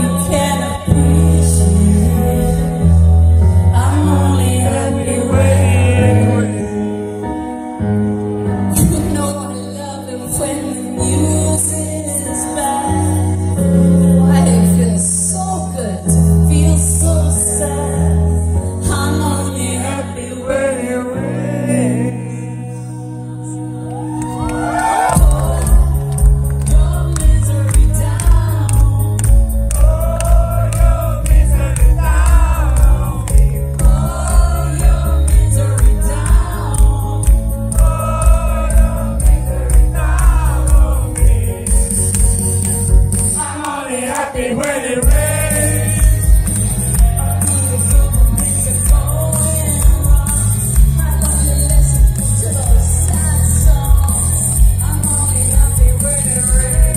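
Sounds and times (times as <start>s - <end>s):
woman singing: 0.0s - 6.7s, 8.7s - 42.1s, 43.2s - 44.6s, 47.0s - 56.9s
low bass notes: 0.0s - 7.0s, 23.4s - 43.4s, 44.9s - 56.9s
live rock band: 24.0s - 56.9s.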